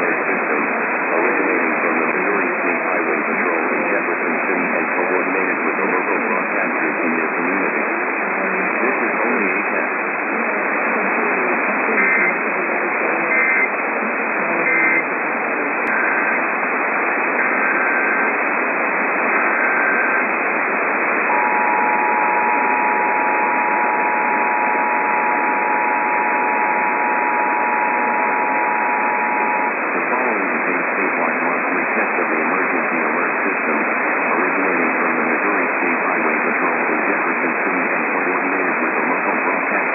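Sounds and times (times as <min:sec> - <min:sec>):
radio static: 0:00.0 - 0:39.9
two-tone attention signal: 0:13.2 - 0:13.7, 0:14.5 - 0:15.1, 0:21.2 - 0:29.8.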